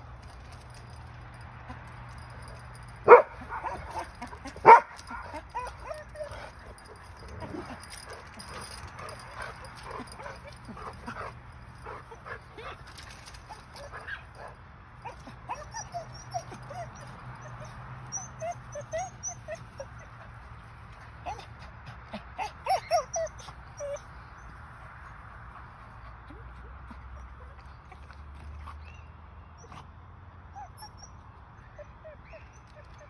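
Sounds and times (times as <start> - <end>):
dogs whining and yipping: 0.2 - 24.8, 25.6 - 29.0, 29.6 - 29.9, 30.5 - 33.0
dogs barking: 2.2 - 17.7.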